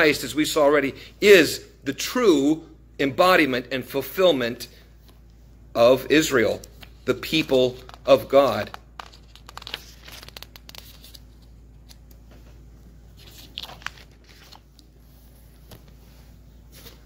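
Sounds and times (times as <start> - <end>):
paper notes rustling and clicking: 6.4 - 16.0.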